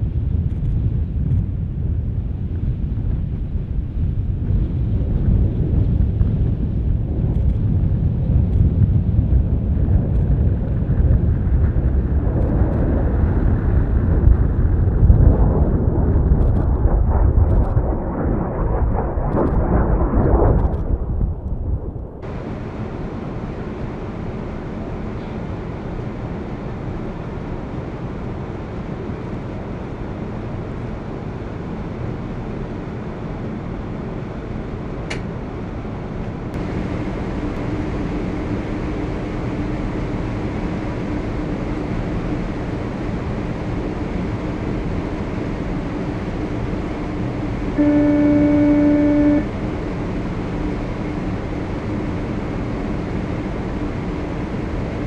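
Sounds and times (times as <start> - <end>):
low hum: 0.0 - 28.2, 36.3 - 55.0
aircraft cabin engine rush: 0.0 - 55.0
loud steady tone: 46.0 - 50.1.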